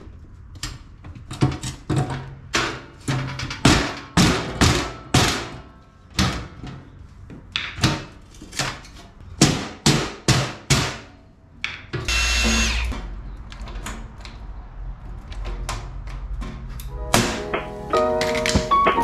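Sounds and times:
cordless drill running: 0:12.1 - 0:12.9
mallet striking metal sheet: 0:17.1 - 0:19.0.

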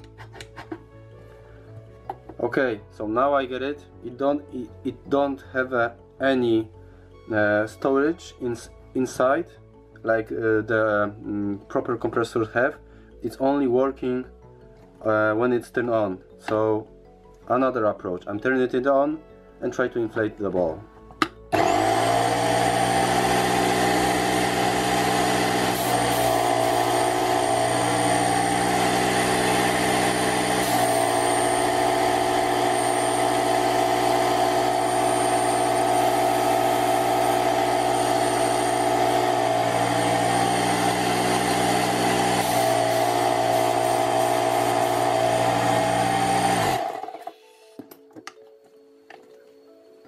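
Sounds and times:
air compressor running: 0:21.5 - 0:47.3.

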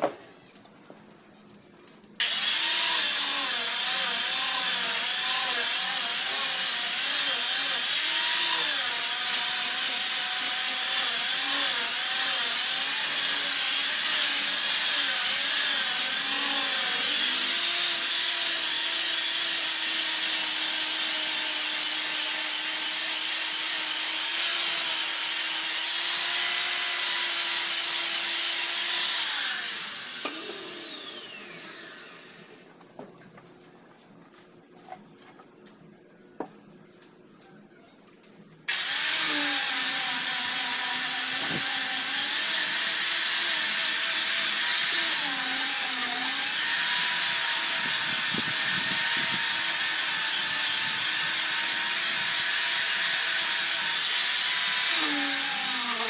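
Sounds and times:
angle grinder sanding wood: 0:02.2 - 0:32.4, 0:38.7 - 0:56.0.

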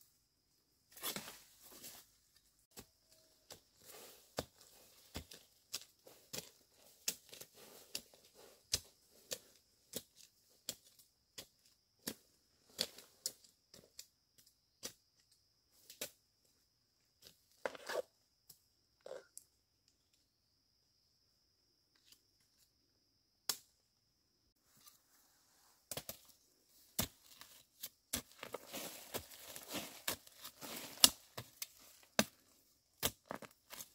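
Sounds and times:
bamboo snapping and cracking: 0:23.5 - 0:23.7, 0:28.7 - 0:32.4.

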